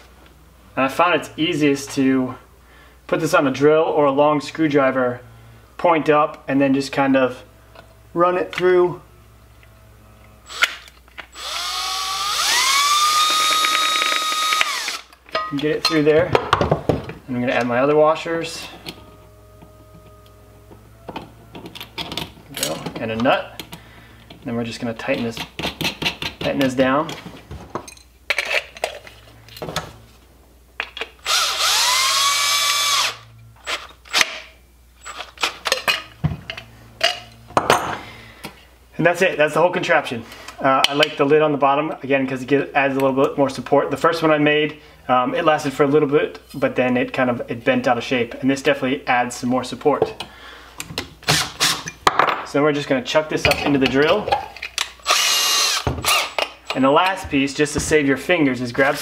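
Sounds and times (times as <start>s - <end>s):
cordless drill whining: 10.4s - 15.2s, 31.2s - 34.2s, 55.0s - 56.4s.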